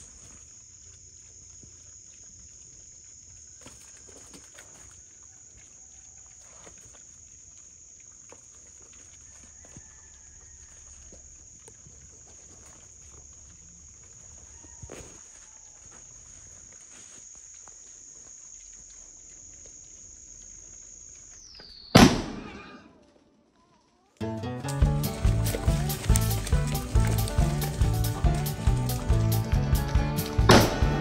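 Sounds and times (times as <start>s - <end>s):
twigs snapping: 24.6s - 29.1s
leaf litter rustling: 24.6s - 29.5s.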